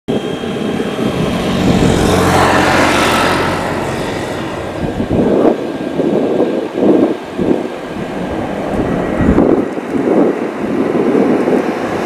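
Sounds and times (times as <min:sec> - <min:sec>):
jet engine rushing: 0:00.1 - 0:12.0
wind buffeting microphone: 0:00.1 - 0:12.0.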